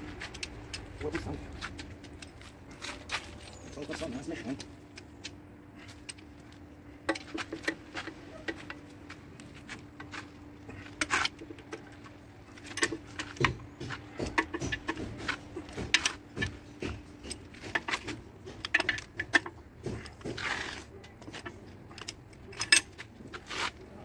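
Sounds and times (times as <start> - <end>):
steel tools clinking: 21.0 - 23.4.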